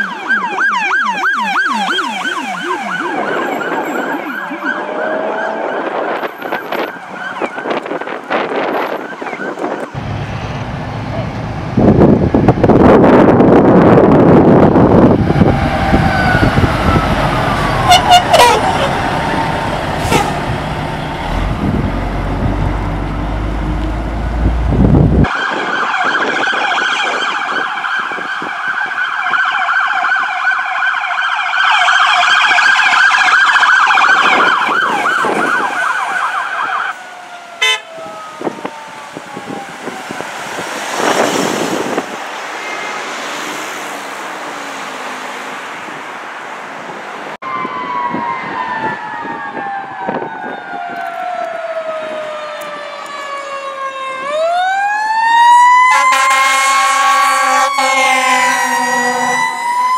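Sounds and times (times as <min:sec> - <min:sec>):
electronic siren warbling: 0:00.0 - 0:10.0, 0:14.2 - 0:20.4, 0:47.4 - 0:59.9
falling siren tone: 0:00.0 - 0:10.0, 0:11.1 - 0:43.1, 0:47.4 - 0:59.9
passing traffic: 0:00.0 - 0:59.9
diesel truck engine rumbling: 0:09.9 - 0:25.3.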